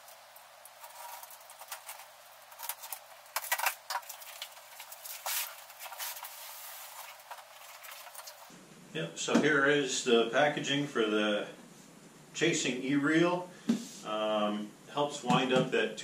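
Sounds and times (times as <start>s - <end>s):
sharp clicks and scrapes: 0.6s - 8.5s
packing tape peeling: 0.7s - 8.5s
cardboard flaps rustling: 0.8s - 8.5s
product sliding against cardboard: 5.0s - 8.4s.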